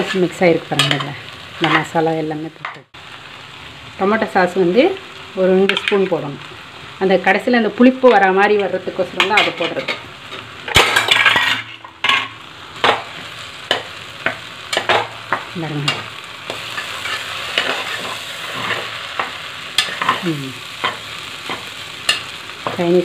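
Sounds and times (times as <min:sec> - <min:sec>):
food sizzling in a pan: 0:00.0 - 0:23.0
spatula scraping and knocking pan: 0:09.2 - 0:20.2.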